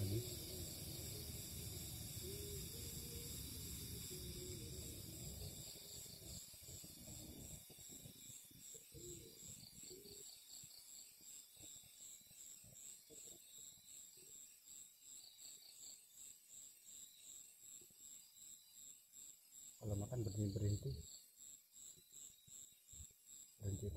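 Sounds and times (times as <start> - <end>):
crickets chirping: 0.0 - 23.9.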